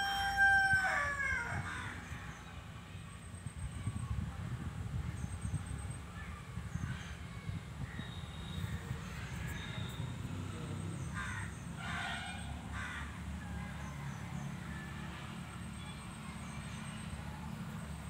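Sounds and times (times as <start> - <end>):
crow cawing: 11.2 - 12.2, 12.8 - 13.1.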